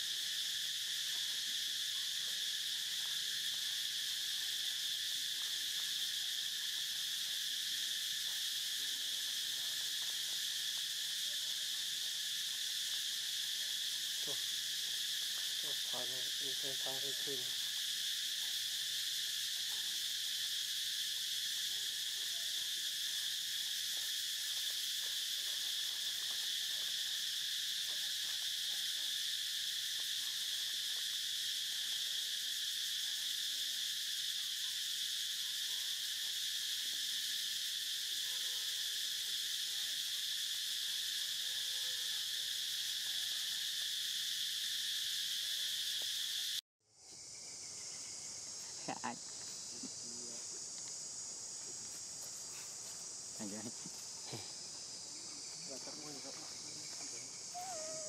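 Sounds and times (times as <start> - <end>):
insects droning: 0.0 - 58.0.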